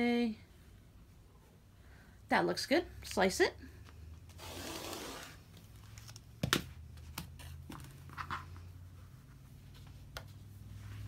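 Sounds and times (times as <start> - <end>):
rotary cutter rolling through fabric: 4.4 - 5.4
fabric rustling: 6.9 - 11.0.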